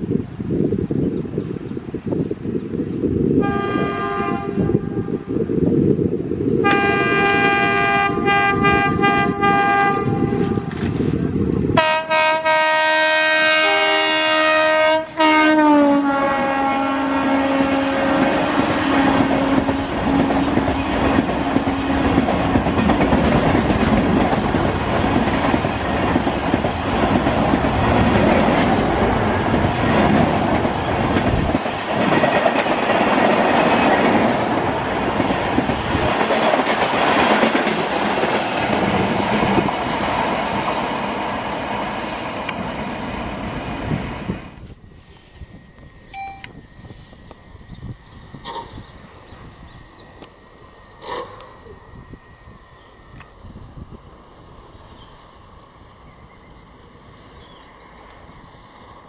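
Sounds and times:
train horn blasts: 0:03.4 - 0:05.4, 0:06.6 - 0:10.9, 0:11.7 - 0:20.6
train coaches rushing past: 0:06.7 - 0:59.0.

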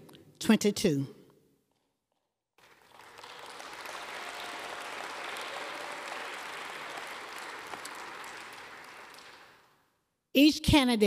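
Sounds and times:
audience applauding: 0:02.6 - 0:09.8.

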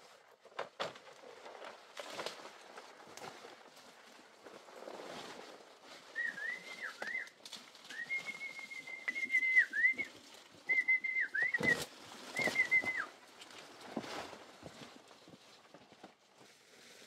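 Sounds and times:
footsteps in dry leaves: 0:01.1 - 0:10.9, 0:11.6 - 0:17.0
high whistled call: 0:06.1 - 0:10.1, 0:10.7 - 0:13.1.

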